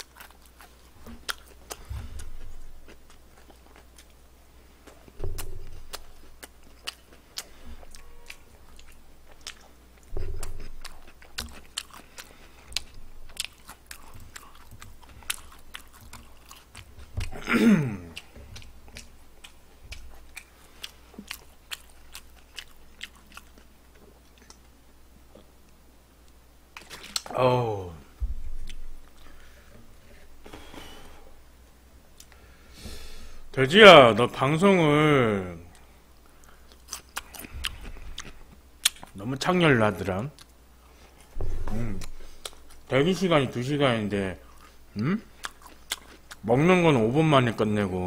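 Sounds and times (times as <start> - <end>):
chewing crispy fried chicken: 0.0 - 4.2, 4.8 - 25.5, 35.7 - 39.2, 44.4 - 46.6
soft low thumps: 5.2 - 6.2, 28.2 - 29.2
falling voice sound: 27.3 - 28.1.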